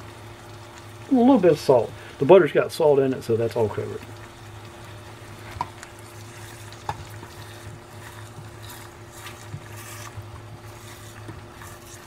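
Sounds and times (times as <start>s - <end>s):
egg sizzling in frying pan: 0.0s - 12.0s
steady low hum: 0.0s - 12.0s
spatula scraping a pan: 5.4s - 12.0s.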